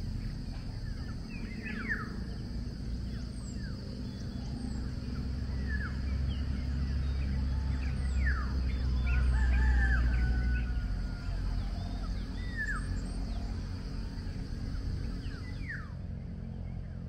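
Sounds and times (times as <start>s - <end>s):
birds chirping and whistling: 0.0s - 17.0s.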